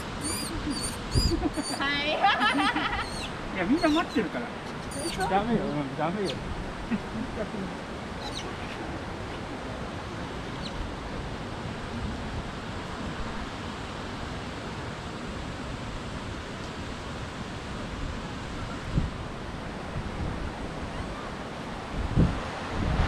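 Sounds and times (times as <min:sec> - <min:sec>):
wind on microphone: 0:00.0 - 0:04.2, 0:04.8 - 0:05.7, 0:08.1 - 0:23.0
faint high chirp: 0:00.2 - 0:01.8, 0:04.8 - 0:05.3.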